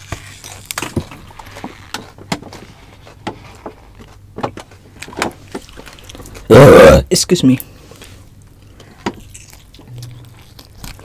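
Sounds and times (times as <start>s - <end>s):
chewing crunches and clicks: 5.0s - 6.5s, 7.9s - 11.0s.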